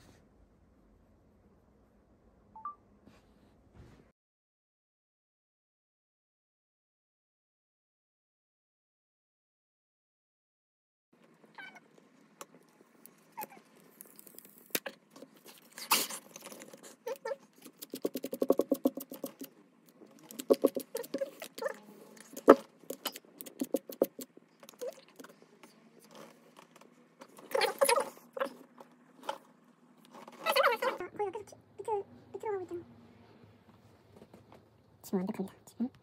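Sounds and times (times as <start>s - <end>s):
fingers scraping on screen: 13.3s - 25.4s
fingers clicking on phone screen: 20.2s - 21.6s, 22.3s - 24.8s.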